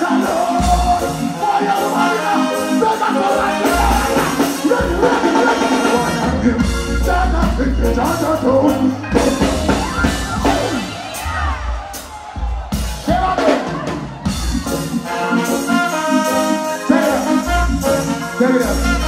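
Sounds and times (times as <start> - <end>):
person singing: 0.0 - 11.6
live reggae band playing: 0.0 - 19.0.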